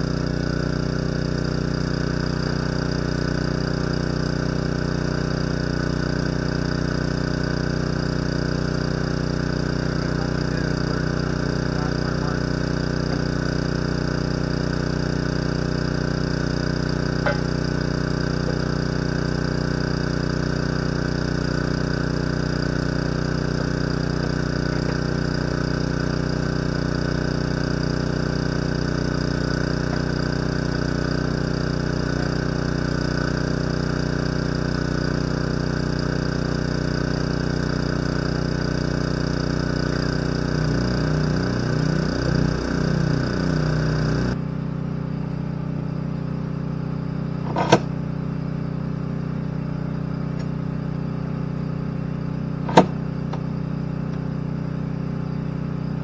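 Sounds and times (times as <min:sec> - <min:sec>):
engine idling: 0:00.0 - 0:56.0
sharp click: 0:47.5 - 0:47.9, 0:52.7 - 0:53.4.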